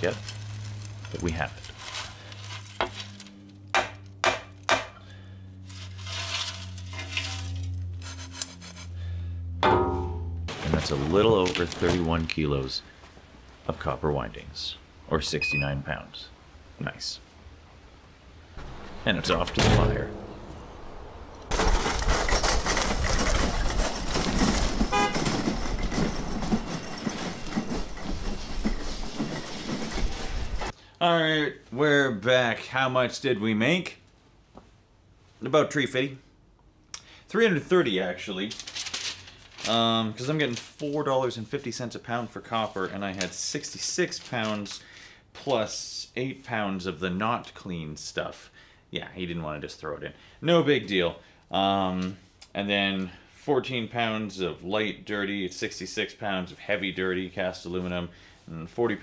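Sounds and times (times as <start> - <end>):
low hum: 2.6 - 11.7
heavy machinery rumbling and clattering: 21.2 - 30.7
shuffling and rustling: 21.5 - 30.7, 38.5 - 41.1
short horn toot: 24.9 - 25.3.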